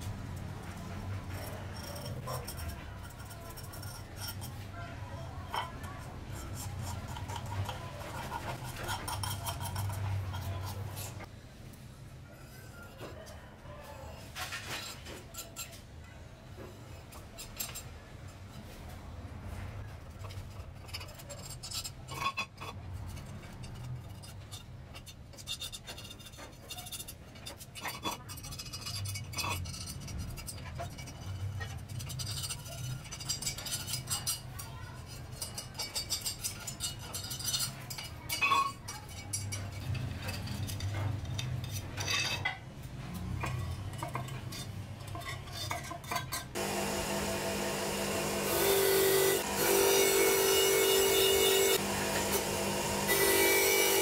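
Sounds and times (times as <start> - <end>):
metal scraper scraping paint: 0.8 - 11.3, 19.9 - 46.8
bench motor with wire wheel: 46.5 - 54.0.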